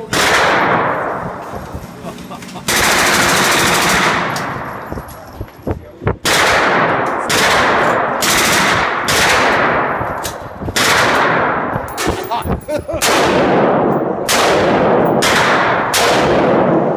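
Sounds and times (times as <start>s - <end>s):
gunshots ringing in a hall: 0.0s - 1.4s, 2.7s - 4.8s, 6.2s - 12.2s, 13.0s - 16.9s.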